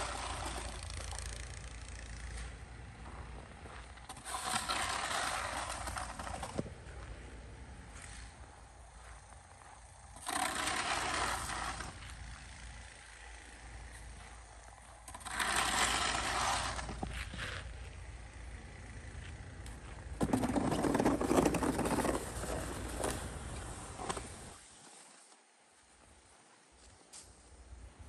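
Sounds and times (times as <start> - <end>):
snow shovel scraping: 0.0 - 0.9, 3.9 - 6.7, 9.3 - 18.0, 20.2 - 25.4.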